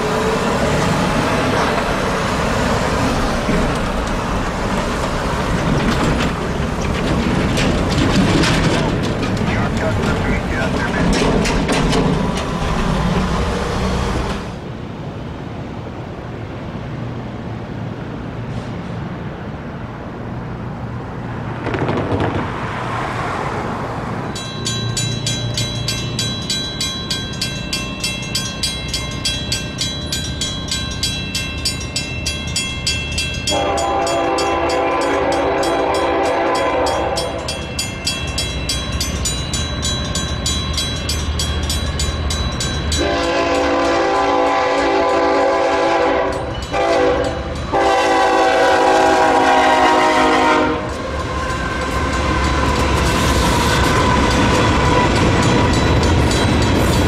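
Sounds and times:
train rumble: 0.0 - 57.0
railroad crossing bells ringing: 9.3 - 12.6, 24.1 - 57.0
locomotive air horn blasts: 33.5 - 37.4, 43.0 - 50.9.

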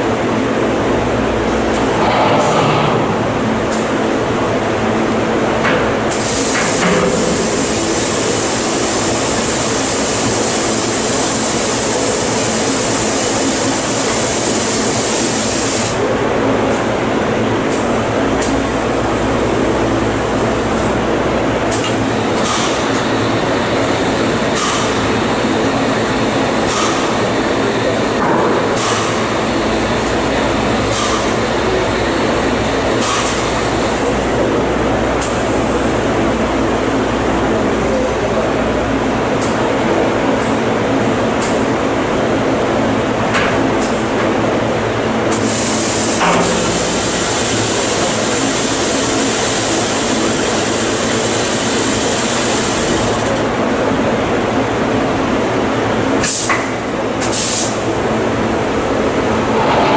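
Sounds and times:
machine hum: 0.0 - 10.2, 58.0 - 59.9.

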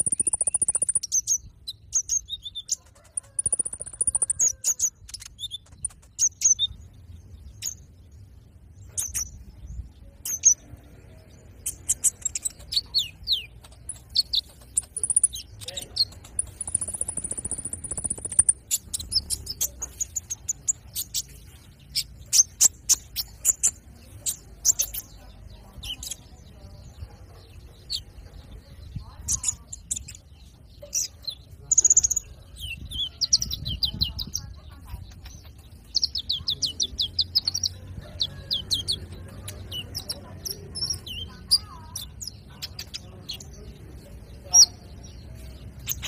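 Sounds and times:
bird sharp chirps: 0.0 - 7.9, 11.4 - 26.3
bird chirping and ticking: 0.0 - 46.0.

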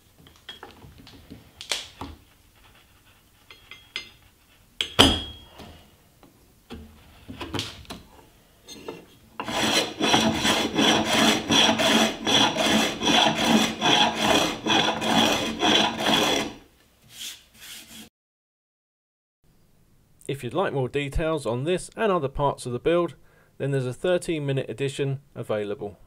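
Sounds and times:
hand plane strokes on wood: 9.4 - 18.1.

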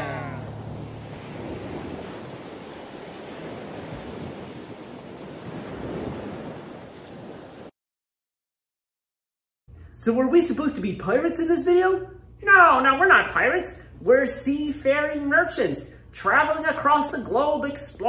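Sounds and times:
sea waves washing: 0.0 - 7.7.

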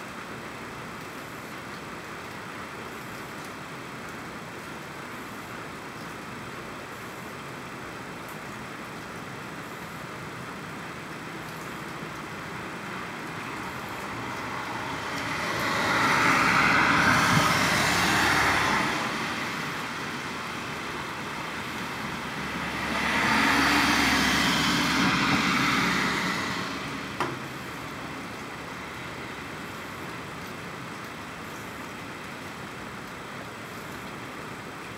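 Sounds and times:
road vehicles passing: 9.6 - 34.8.

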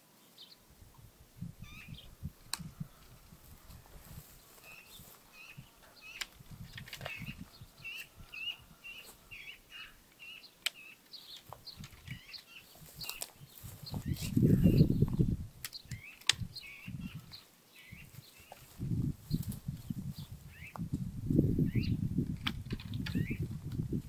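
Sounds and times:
small songbirds chirping: 0.0 - 24.0
sharp clicks: 15.1 - 16.5.

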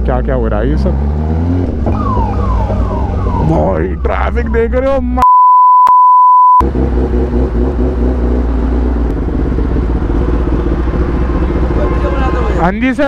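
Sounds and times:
censor bleep: 5.2 - 6.6
motorcycle engine running: 6.6 - 12.9.

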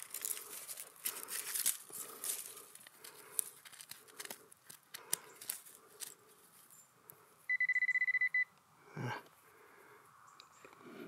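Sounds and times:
dry grass crackling: 0.0 - 7.2
metal detector beeping: 7.5 - 8.5.

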